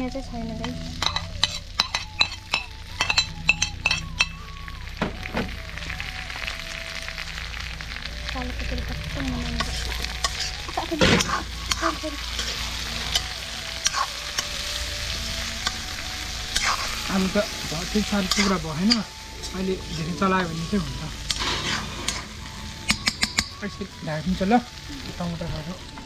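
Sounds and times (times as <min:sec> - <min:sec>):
food sizzling in a wok: 0:00.0 - 0:26.0
ladle scraping a metal pan: 0:01.0 - 0:04.4, 0:21.3 - 0:22.3.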